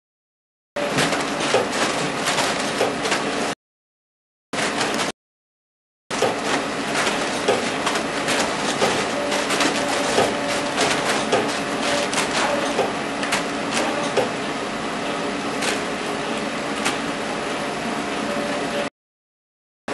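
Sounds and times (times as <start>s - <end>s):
packing machinery humming: 0.8s - 3.5s, 6.1s - 18.9s.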